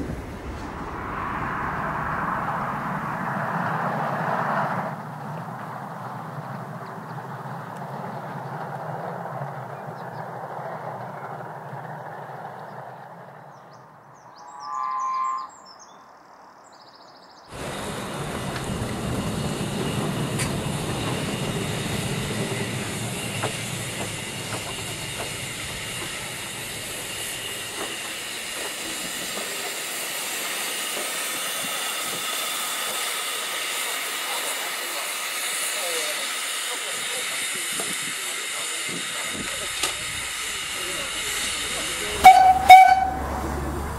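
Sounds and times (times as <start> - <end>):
distant steam train running: 0.0 - 15.3, 17.5 - 43.9
high train whistle: 14.4 - 15.8, 40.8 - 43.9
steam venting hiss: 17.5 - 43.9.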